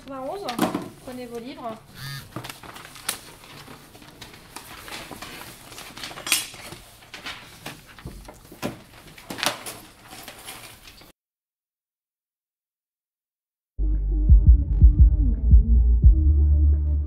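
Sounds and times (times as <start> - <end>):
books and papers shuffling: 0.0 - 11.2
pens and pencils clinking: 2.3 - 11.1.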